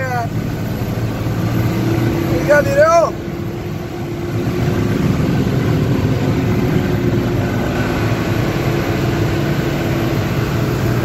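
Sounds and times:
road noise: 0.0s - 11.0s
truck engine running: 0.0s - 11.0s
low hum: 0.2s - 11.0s.

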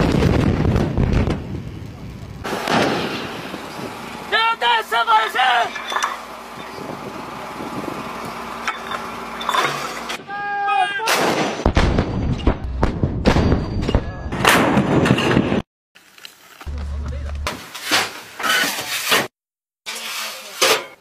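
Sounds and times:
rolling rumble with sharp cracks: 0.0s - 10.2s, 11.1s - 17.5s
howitzer blast: 2.4s - 5.7s, 10.2s - 15.6s.

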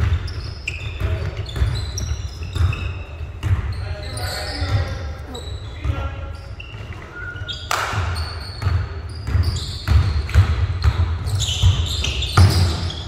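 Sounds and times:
basketball bouncing on wooden floor: 0.0s - 3.8s, 7.8s - 13.0s
sneaker squeaks: 0.0s - 13.0s.

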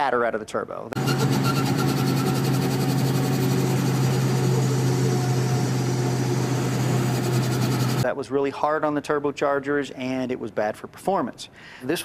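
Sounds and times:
diesel engine clatter: 1.0s - 8.0s.

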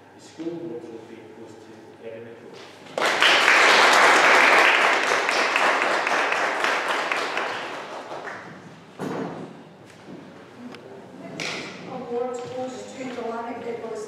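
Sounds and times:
audience applause: 3.0s - 8.5s.

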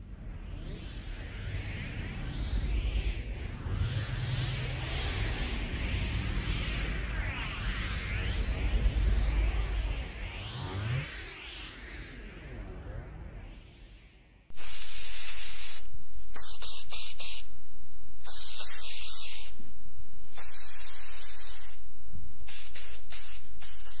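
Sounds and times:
spray paint can hissing: 14.5s - 17.4s, 18.2s - 19.5s, 20.3s - 21.8s, 22.4s - 24.0s.

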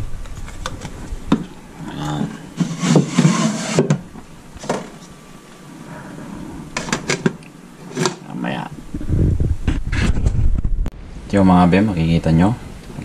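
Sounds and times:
low sound with breathy hiss: 4.2s - 13.0s.

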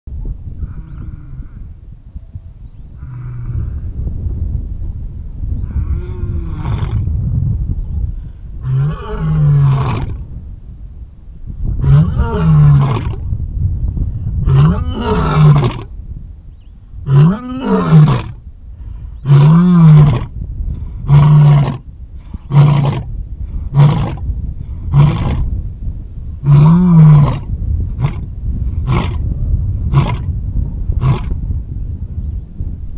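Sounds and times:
steady low rumble: 0.1s - 32.9s
lion roaring: 26.4s - 28.2s.

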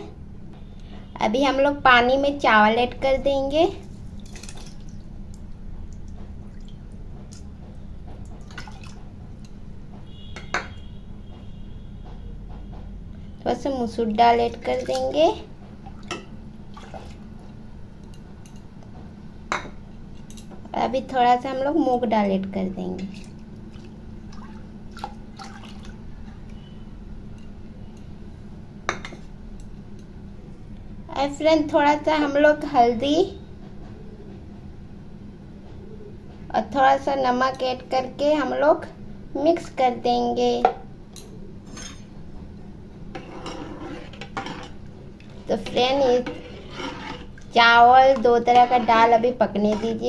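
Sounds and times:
small splashes and drips: 3.8s - 7.5s, 8.4s - 9.0s, 15.9s - 17.3s, 23.1s - 26.0s.

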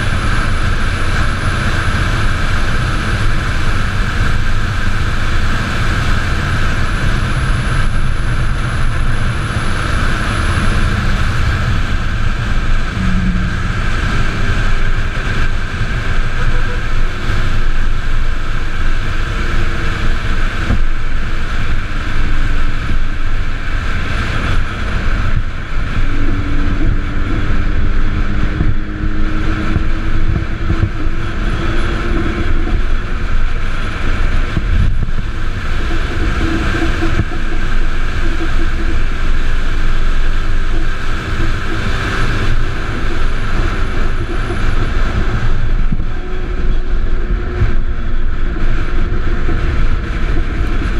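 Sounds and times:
road rumble: 0.0s - 50.9s
wind buffeting microphone: 0.0s - 50.9s
faint whining tones: 7.8s - 17.8s.

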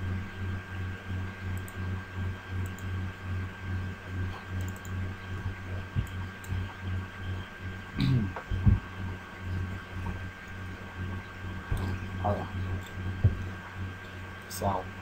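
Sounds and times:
faint high whine: 0.0s - 15.0s
pulsing low hum: 0.0s - 15.0s
computer mouse clicks: 1.6s - 1.8s, 2.6s - 2.9s, 4.6s - 5.0s.

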